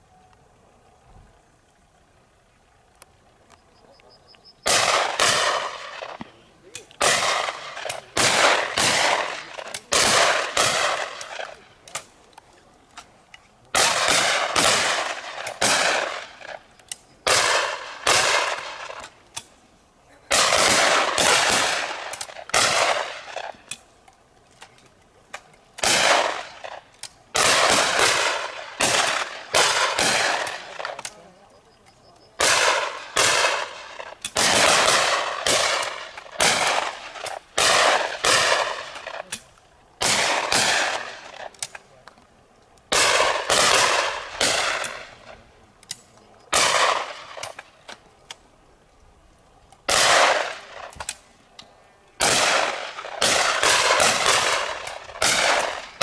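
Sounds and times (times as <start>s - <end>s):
shotgun shots with echo: 4.7s - 6.4s, 7.0s - 12.1s, 13.8s - 16.7s, 17.3s - 19.1s, 20.3s - 23.8s, 25.8s - 31.2s, 32.4s - 41.5s, 42.9s - 45.3s, 46.5s - 47.7s, 49.9s - 51.2s, 52.2s - 56.0s.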